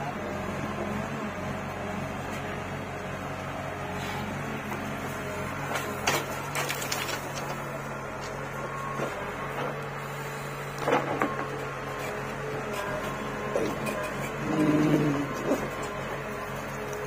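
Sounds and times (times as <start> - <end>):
diesel engine running: 0.0 - 17.0
soil and stones clattering into trolley: 5.7 - 7.8.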